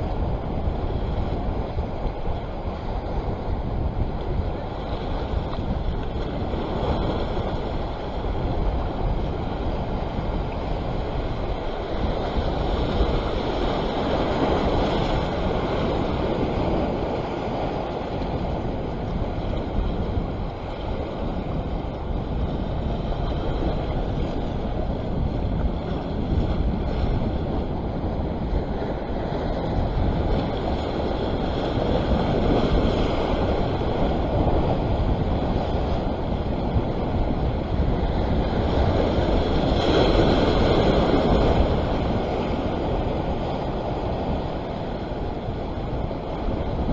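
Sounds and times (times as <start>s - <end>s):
sea waves against rocks: 0.0s - 46.9s
wind buffeting microphone: 0.0s - 46.9s.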